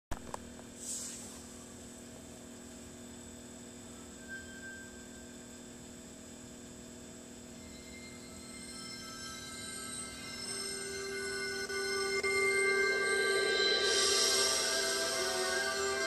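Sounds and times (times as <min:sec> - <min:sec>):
electrical mains hum: 0:00.1 - 0:16.0
faint high whines: 0:00.6 - 0:16.0
brief soft tone: 0:03.9 - 0:05.5.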